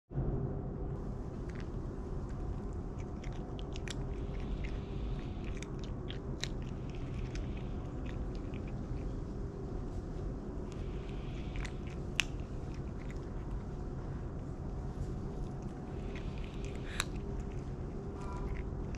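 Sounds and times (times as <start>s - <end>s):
low background hum: 0.1s - 18.9s
cats crunching dry kibble: 1.0s - 18.9s.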